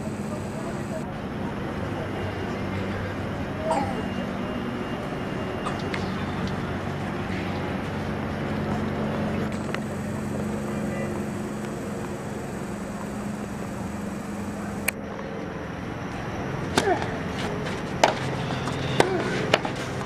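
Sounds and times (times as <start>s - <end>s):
faint voices: 0.0s - 20.0s
steady low hum: 0.0s - 20.0s
racket hitting tennis ball: 18.0s - 19.9s.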